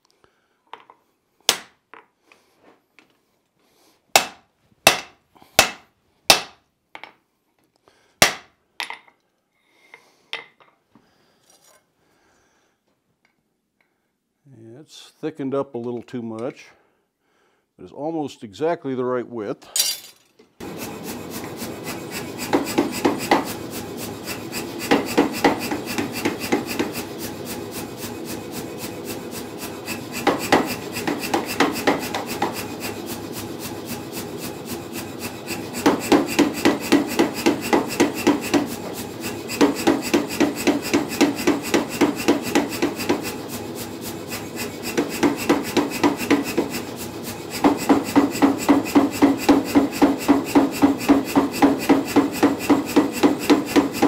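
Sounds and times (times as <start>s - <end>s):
power hammer heavy blows: 20.6s - 54.0s
running hammer steady beat: 20.6s - 54.0s.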